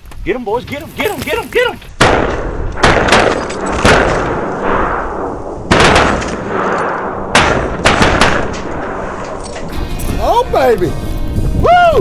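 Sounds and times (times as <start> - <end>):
shotgun blasts echoing: 2.0 - 9.2.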